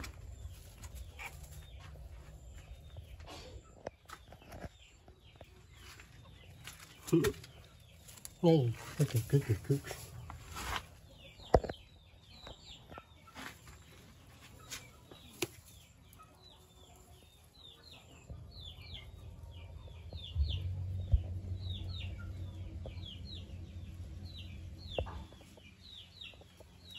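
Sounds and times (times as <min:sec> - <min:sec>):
chicks peeping: 0:00.0 - 0:26.9
low rumble: 0:19.2 - 0:25.0.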